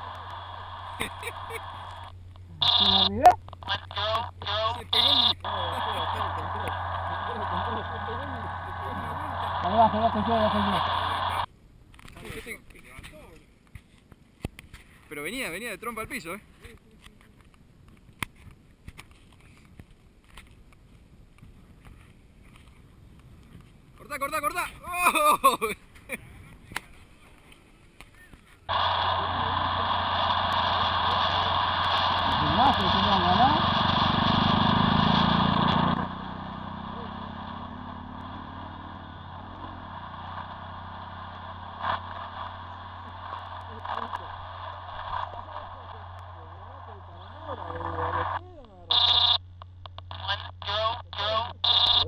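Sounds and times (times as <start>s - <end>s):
muffled steady noise: 0.0s - 52.0s
model aircraft motor buzzing: 28.8s - 43.0s.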